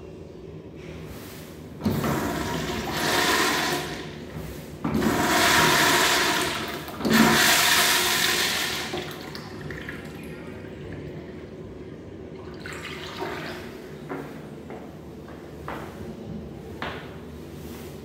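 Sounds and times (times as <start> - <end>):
urinal flushing: 1.2 - 14.4.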